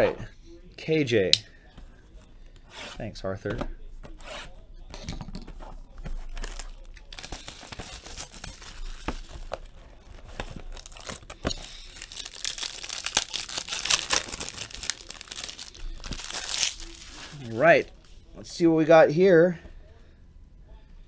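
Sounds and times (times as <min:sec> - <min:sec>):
plastic shrink-wrap crinkling and tearing: 0:06.2 - 0:18.1.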